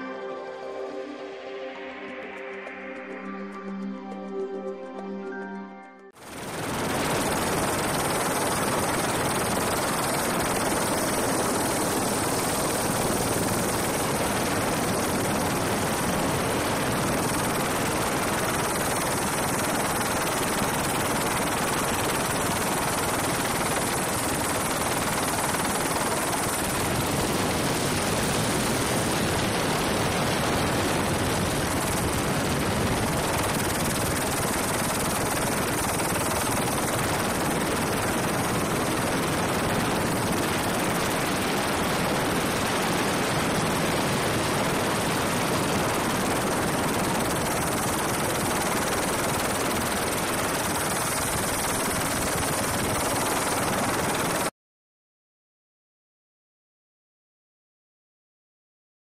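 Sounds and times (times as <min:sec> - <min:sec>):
high-pitched whine: 0:00.0 - 0:06.1.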